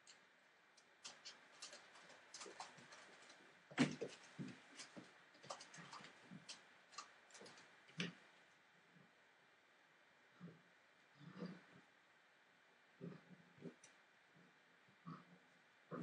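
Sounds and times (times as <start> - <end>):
puppy claws clicking on hard floor: 1.0 - 8.1.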